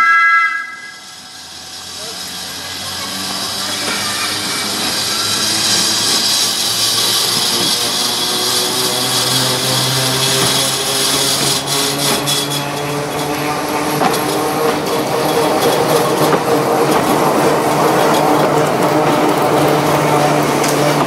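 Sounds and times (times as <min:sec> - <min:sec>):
electric locomotive motors whining: 0:00.0 - 0:21.0
wheels grinding on rails: 0:00.8 - 0:21.0.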